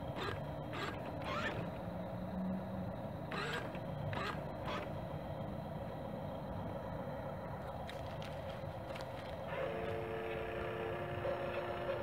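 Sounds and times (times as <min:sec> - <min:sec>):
small electric motor and gearing: 0:00.0 - 0:01.8, 0:03.3 - 0:05.0, 0:07.9 - 0:12.0.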